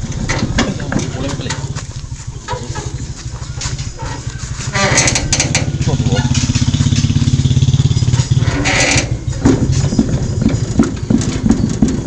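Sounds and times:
diesel engine chugging: 0:00.0 - 0:12.0
irregular knocks: 0:06.4 - 0:12.0.

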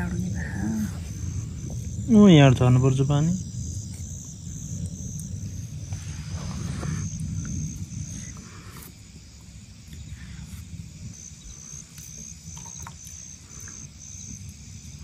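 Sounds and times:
low rumble: 0:00.0 - 0:11.8
insect chirping: 0:00.0 - 0:15.0.

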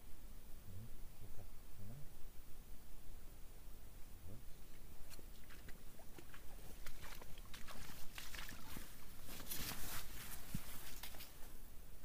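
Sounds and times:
footsteps crunching in sand: 0:05.1 - 0:11.6
rustling and scuffing: 0:05.1 - 0:11.6.

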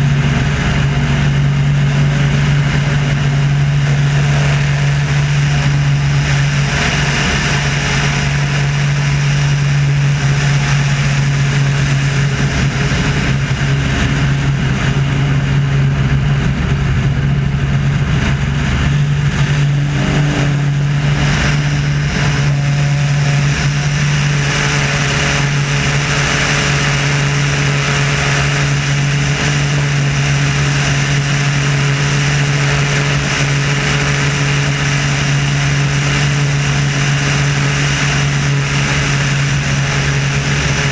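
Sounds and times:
airplane engine and propeller droning: 0:00.0 - 0:40.9
wind rushing over microphone: 0:00.0 - 0:40.9.

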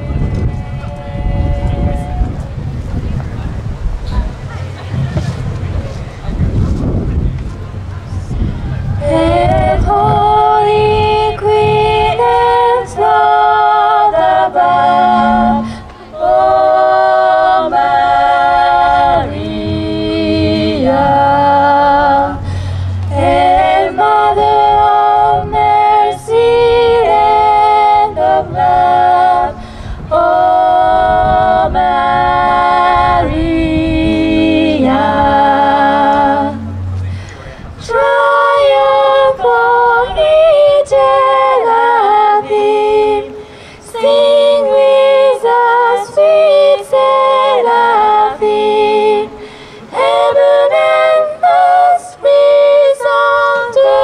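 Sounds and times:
vocal group singing a hymn: 0:00.0 - 0:02.6, 0:08.0 - 0:54.0
singers breathing: 0:08.2 - 0:09.0, 0:15.6 - 0:16.1, 0:22.4 - 0:23.1, 0:29.6 - 0:30.1, 0:36.8 - 0:37.8, 0:43.3 - 0:43.9, 0:49.3 - 0:50.0.

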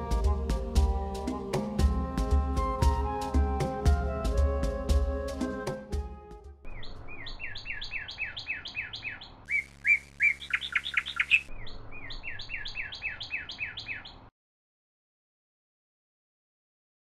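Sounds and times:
bird chirping falling notes: 0:06.6 - 0:14.3.

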